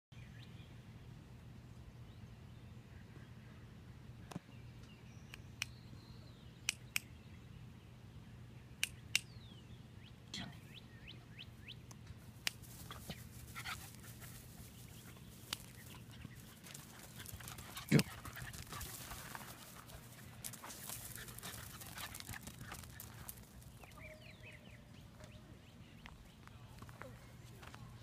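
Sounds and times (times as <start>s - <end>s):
rustling and crunching of mulch: 12.5s - 23.9s.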